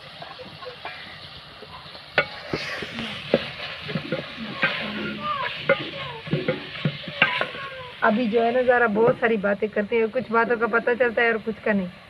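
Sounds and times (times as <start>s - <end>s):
food sizzling in a pot: 0.0s - 12.0s
metal spatula scraping a pot: 2.2s - 9.3s
spatula knocking against pot: 3.3s - 7.7s.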